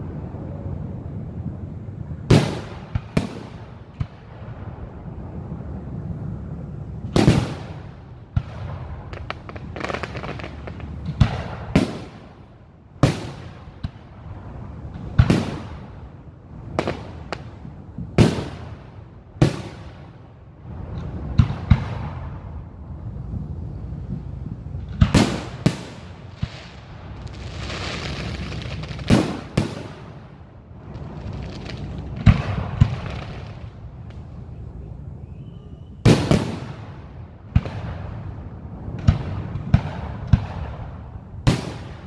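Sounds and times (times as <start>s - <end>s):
firework shells booming: 7.1s - 12.4s, 24.8s - 34.3s, 36.0s - 42.0s.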